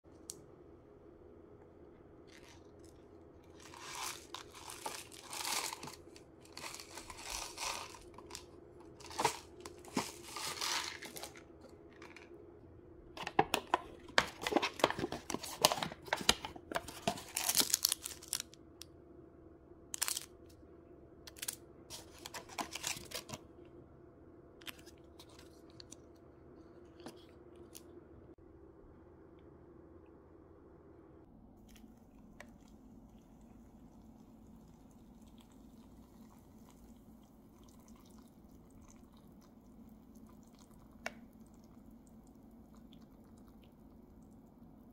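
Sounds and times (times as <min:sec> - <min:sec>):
foil sachets crinkling: 0:03.5 - 0:12.3, 0:13.6 - 0:18.6, 0:20.0 - 0:20.3, 0:21.3 - 0:23.4
plastic film and foil ripping: 0:03.6 - 0:11.4, 0:14.4 - 0:18.6, 0:20.0 - 0:20.3.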